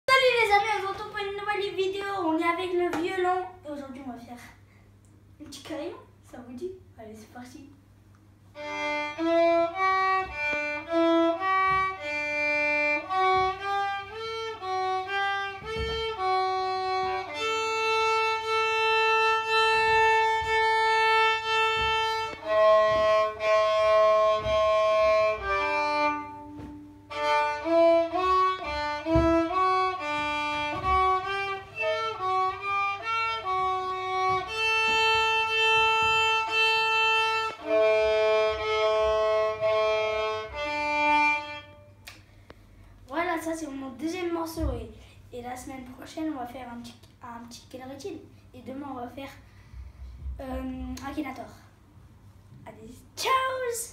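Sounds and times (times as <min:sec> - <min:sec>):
solo violin playing: 0:08.5 - 0:42.0.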